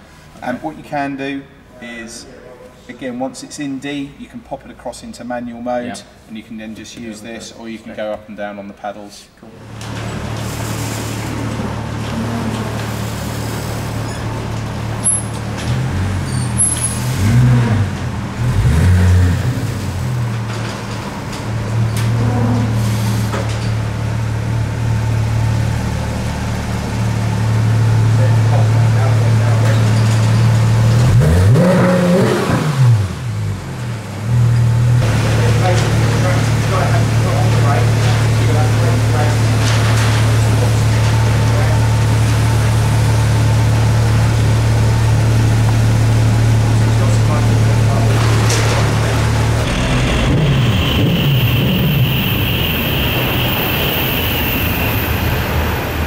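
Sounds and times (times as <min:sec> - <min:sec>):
car engine idling and revving: 0:09.6 - 0:56.0
car engine at low revs: 0:11.3 - 0:22.7.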